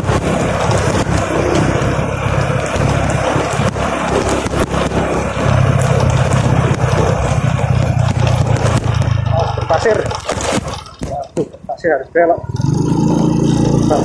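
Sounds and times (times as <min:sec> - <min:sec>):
wind rushing over microphone: 0:00.0 - 0:10.8
motorcycle engine running: 0:00.0 - 0:14.0.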